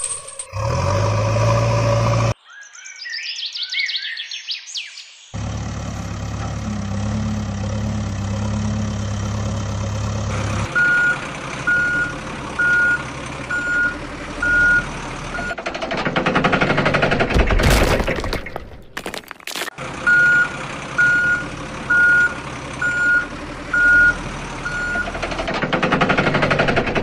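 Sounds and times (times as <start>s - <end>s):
diesel engine running: 0.4s - 2.4s, 5.4s - 27.0s
reversing alarm beeping: 10.8s - 15.6s, 20.1s - 25.1s
rocks rattling from dump truck: 15.2s - 19.8s.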